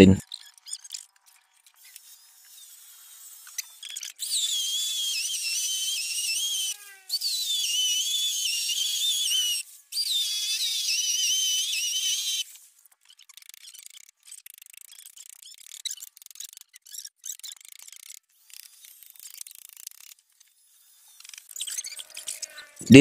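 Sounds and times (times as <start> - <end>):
electric drill boring into concrete: 0.3 - 13.9.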